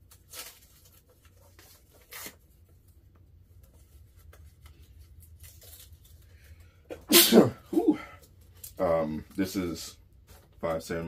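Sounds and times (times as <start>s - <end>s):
packaging ripping: 0.1s - 2.4s.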